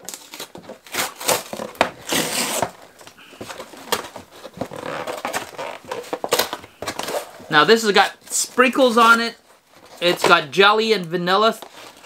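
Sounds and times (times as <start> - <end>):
cardboard box tearing: 0.0 - 2.8, 3.5 - 7.4
cardboard clicks and crinkles: 0.0 - 7.5.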